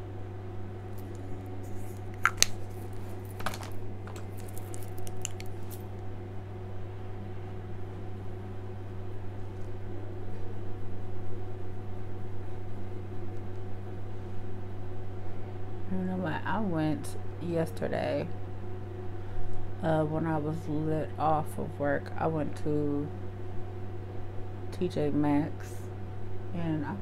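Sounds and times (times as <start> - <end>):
steady low hum: 0.0 - 27.0
makeup products clicking: 2.2 - 2.6, 3.4 - 5.5.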